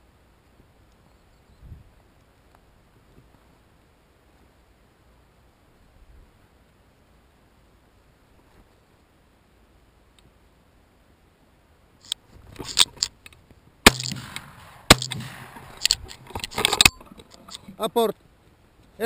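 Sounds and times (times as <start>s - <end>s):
rustling through brush: 1.8s - 9.6s, 12.0s - 19.0s
gunshots: 13.8s - 16.0s.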